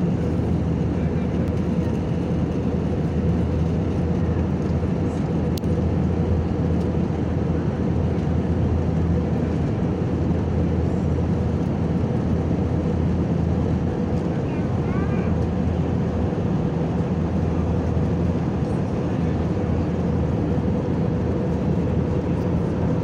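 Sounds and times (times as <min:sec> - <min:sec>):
jet engine and airflow rush: 0:00.0 - 0:23.0.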